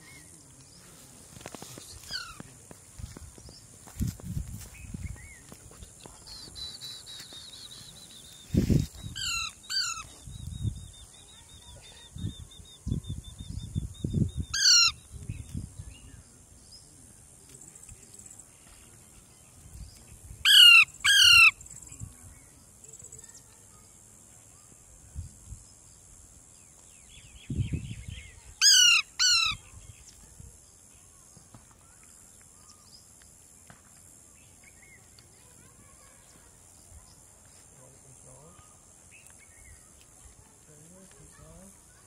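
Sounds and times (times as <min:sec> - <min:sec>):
high-pitched background hiss: 0:00.0 - 0:42.0
parakeets screeching: 0:09.1 - 0:10.1, 0:14.5 - 0:15.0, 0:20.5 - 0:21.6, 0:28.6 - 0:29.7.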